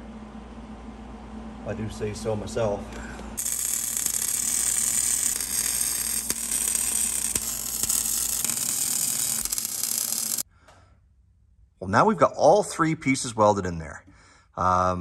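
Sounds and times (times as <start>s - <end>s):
welder arc crackling: 3.4s - 10.5s.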